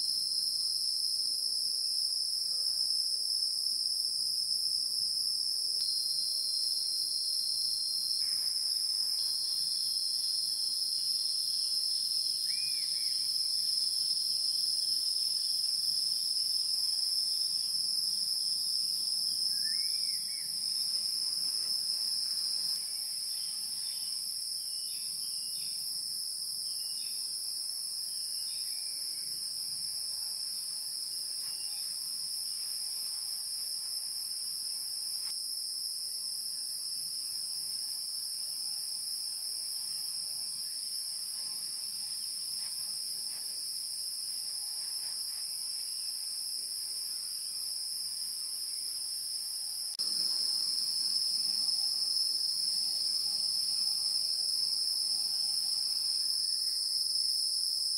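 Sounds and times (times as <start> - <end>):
insects trilling: 5.6 - 35.3, 36.4 - 57.9.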